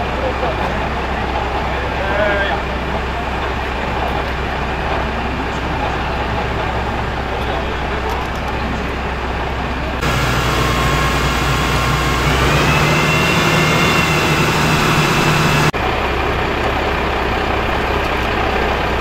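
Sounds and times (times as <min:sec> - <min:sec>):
fire engine engine and pump drone: 0:00.0 - 0:19.0
loud hiss: 0:10.0 - 0:15.7
thin rising whine: 0:10.0 - 0:15.7.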